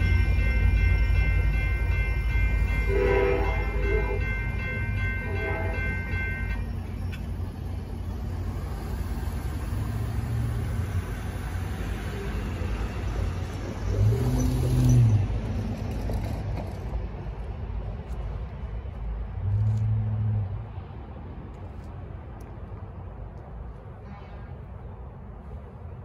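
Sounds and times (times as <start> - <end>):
railroad crossing bell ringing: 0.0 - 8.9, 9.7 - 15.5
road traffic rumble: 0.0 - 26.0.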